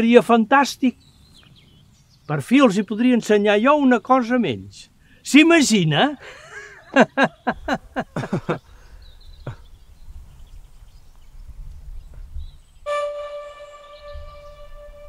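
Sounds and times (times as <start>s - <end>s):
faint birdsong: 0.0s - 15.0s
man laughing: 6.2s - 8.7s, 9.4s - 9.7s
wind rumble on microphone: 8.9s - 12.9s, 14.0s - 15.0s
held musical chord: 12.8s - 15.0s.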